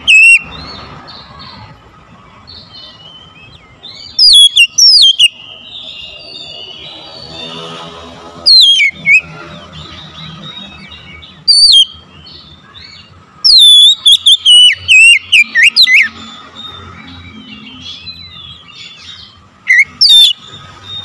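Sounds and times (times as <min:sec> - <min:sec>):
bird singing whistled phrases: 0:00.0 - 0:00.6, 0:02.6 - 0:07.4, 0:08.5 - 0:09.4, 0:10.2 - 0:16.2, 0:17.1 - 0:21.0.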